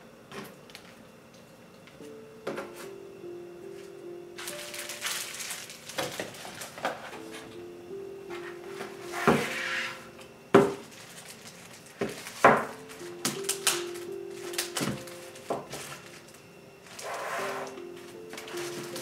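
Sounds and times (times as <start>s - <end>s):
soft background music: 2.0s - 19.0s
plastic bag crinkling: 4.4s - 7.2s, 10.7s - 19.0s.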